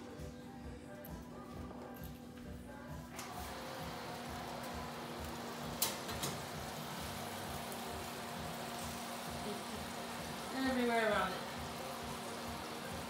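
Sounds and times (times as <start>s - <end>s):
chicken sizzling in a pan: 3.8s - 13.0s.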